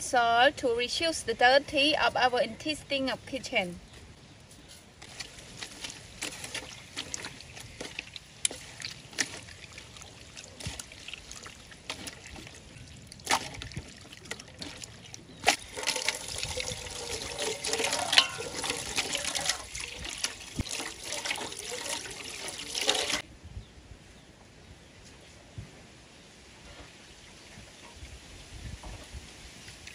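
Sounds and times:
wet squelching and slapping: 0:05.0 - 0:23.2.

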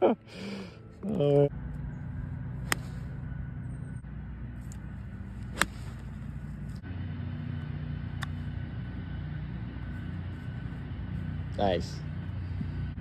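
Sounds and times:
steady low rumble: 0:00.0 - 0:13.0
golf club striking ball: 0:01.7 - 0:03.2, 0:04.6 - 0:06.8, 0:08.0 - 0:09.0.

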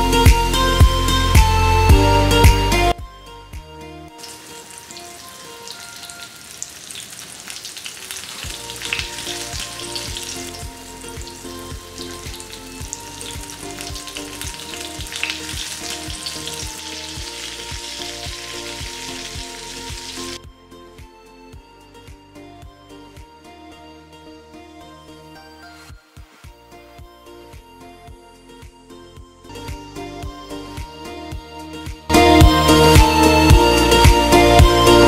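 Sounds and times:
background music with a beat: 0:00.0 - 0:04.5, 0:08.4 - 0:35.0
fish sizzling in oil: 0:04.2 - 0:20.4.

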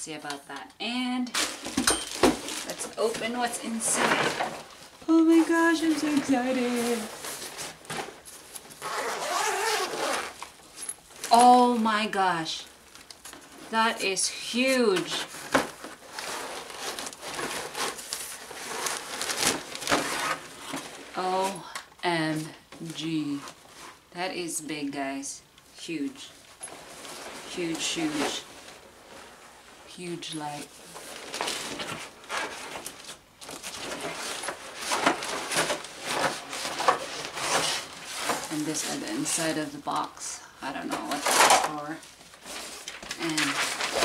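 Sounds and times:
cardboard rustling and scraping: 0:01.4 - 0:11.4, 0:14.9 - 0:21.6, 0:30.6 - 0:39.6, 0:40.9 - 0:44.0
fabric bag rustling: 0:01.4 - 0:11.7.

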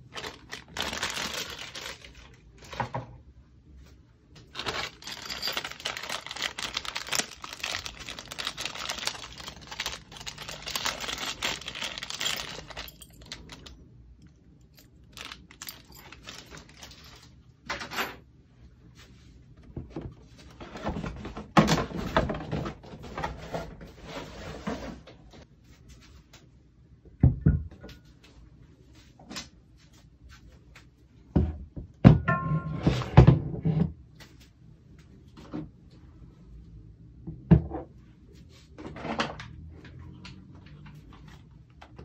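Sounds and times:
cardboard packaging rustling: 0:00.0 - 0:02.9, 0:04.5 - 0:13.7, 0:14.8 - 0:17.3.

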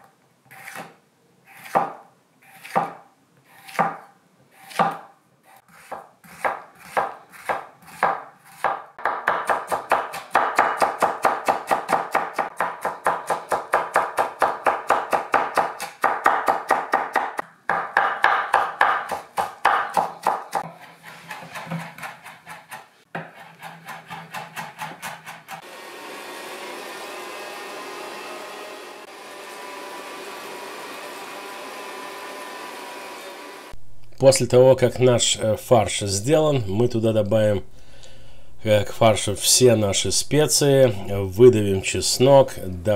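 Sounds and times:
knife chopping on wooden board: 0:01.6 - 0:02.0, 0:02.6 - 0:03.0, 0:03.6 - 0:25.6
meat grinder humming: 0:25.6 - 0:33.8.

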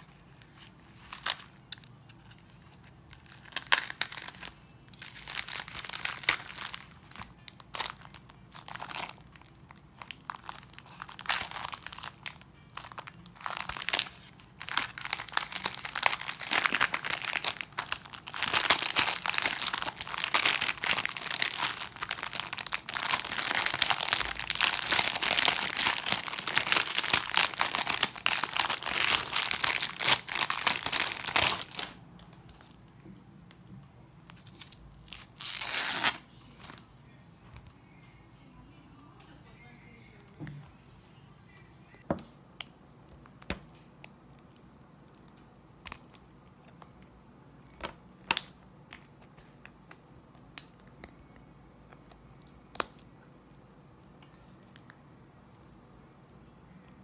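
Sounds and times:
plastic packaging crinkling: 0:00.0 - 0:32.9, 0:34.2 - 0:36.8.

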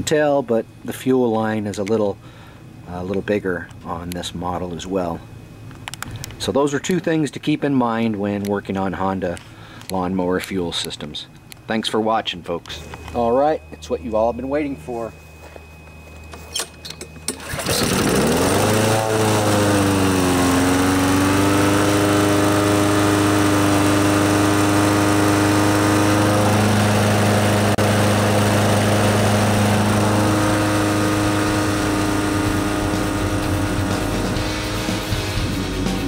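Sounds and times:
lawnmower engine starting and running: 0:16.0 - 0:36.0.

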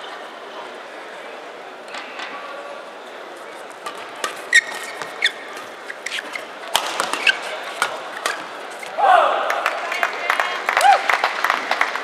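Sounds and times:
sports hall background noise: 0:00.0 - 0:12.0
shoes squeaking on court: 0:03.5 - 0:09.0
racket striking shuttlecock: 0:03.8 - 0:08.5.

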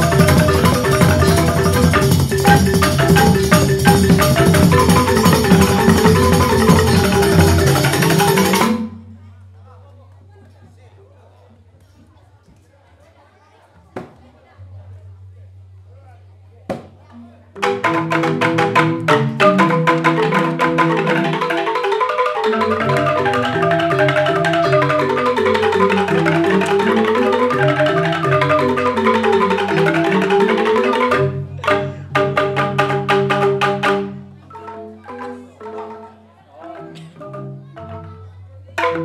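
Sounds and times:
bamboo xylophones interlocking: 0:00.0 - 0:09.1, 0:17.5 - 0:39.0.

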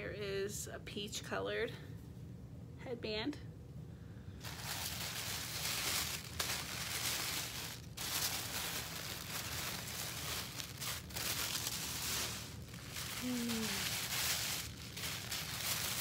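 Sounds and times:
tissue paper crinkling: 0:04.4 - 0:16.0.

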